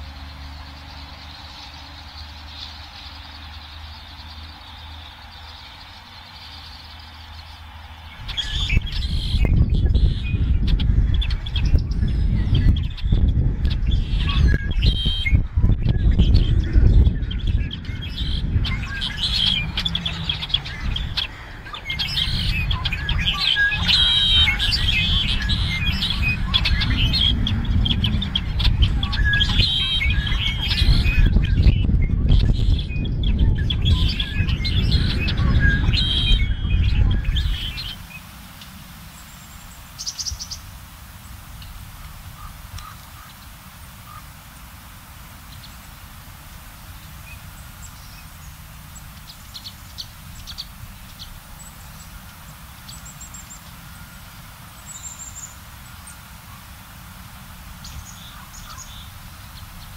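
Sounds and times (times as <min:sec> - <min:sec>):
songbirds chirping: 0:00.0 - 0:59.9
uneven low rumble: 0:07.3 - 0:39.7.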